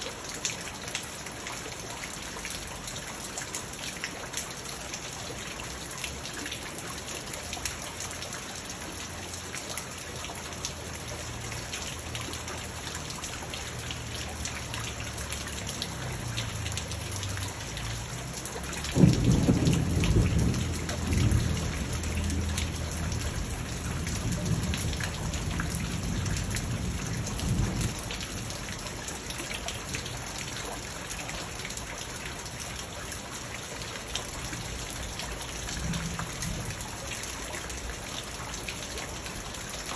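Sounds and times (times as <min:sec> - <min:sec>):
rain falling on a pond: 0:00.0 - 0:39.9
thunder crack and rumble: 0:18.9 - 0:28.5.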